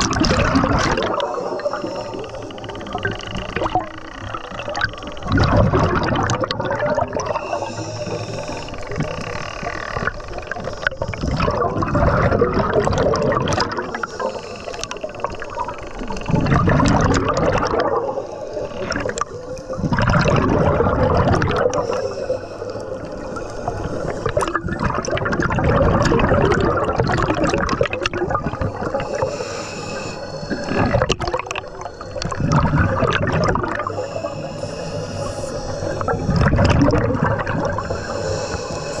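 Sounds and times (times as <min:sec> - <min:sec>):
diver regulator bubbling and gurgling: 0:00.0 - 0:39.0
regulator hiss: 0:01.0 - 0:05.3, 0:07.1 - 0:11.4, 0:13.9 - 0:16.3, 0:18.0 - 0:20.0, 0:21.6 - 0:24.6, 0:28.4 - 0:39.0.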